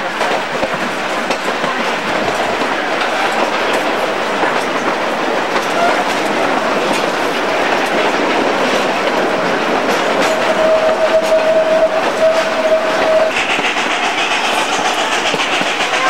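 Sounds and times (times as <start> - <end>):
train wheels rattling on track: 0.0 - 16.0
higher-pitched squeal: 10.3 - 16.0
high squeal: 10.4 - 16.0.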